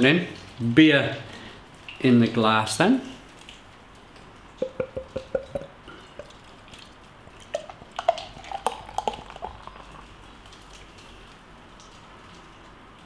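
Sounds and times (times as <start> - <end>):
beer glugging from a bottle: 4.6 - 10.2.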